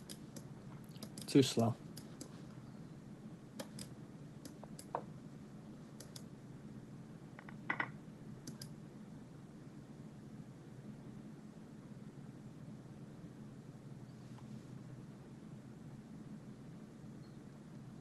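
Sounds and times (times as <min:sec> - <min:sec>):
computer mouse clicks: 0:00.0 - 0:02.4, 0:03.6 - 0:05.0, 0:06.0 - 0:06.3, 0:08.4 - 0:08.8
faint low hum: 0:00.0 - 0:18.0.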